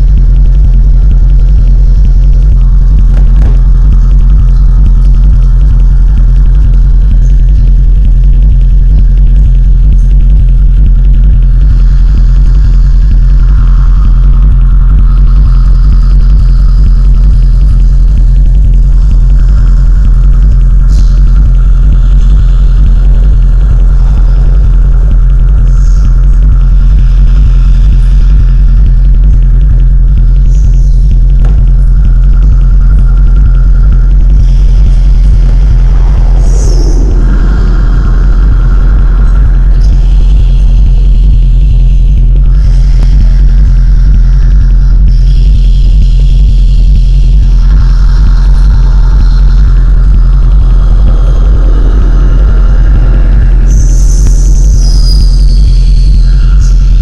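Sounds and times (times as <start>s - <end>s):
fluttering crackle: 0.0s - 43.6s
deep rumbling electronic drone: 0.0s - 57.0s
heavy low hum: 0.0s - 57.0s
thin steady tone: 31.2s - 43.0s
higher tone: 35.3s - 40.4s, 50.0s - 54.8s
falling pitch sweep: 35.5s - 40.4s, 50.0s - 54.8s.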